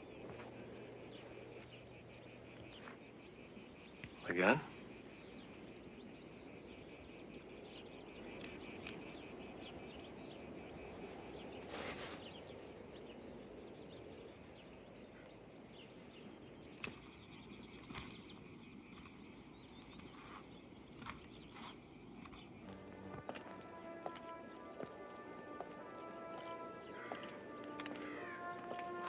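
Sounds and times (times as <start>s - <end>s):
wind hiss: 0.0s - 28.3s
insects chirping: 0.0s - 29.0s
rustling noise: 11.6s - 12.4s.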